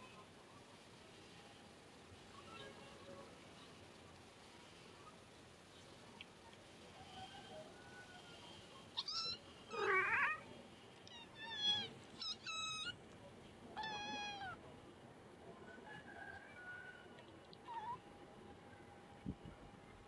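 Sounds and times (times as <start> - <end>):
kittens mewing: 9.0 - 10.5, 11.1 - 13.0, 13.8 - 14.6.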